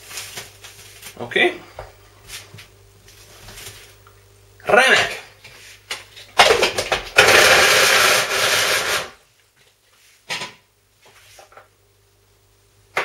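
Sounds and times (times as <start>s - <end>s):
electric food chopper grinding: 6.4s - 9.2s.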